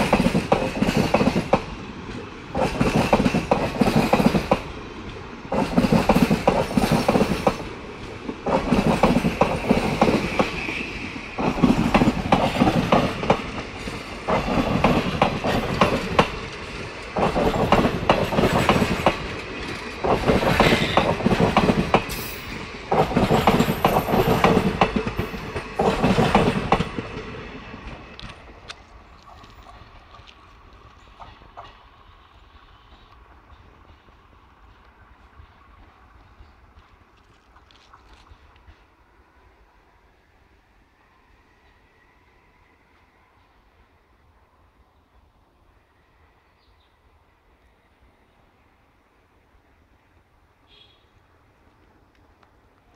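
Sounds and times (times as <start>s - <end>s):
train wheels clattering over rail joints: 0.0s - 32.0s.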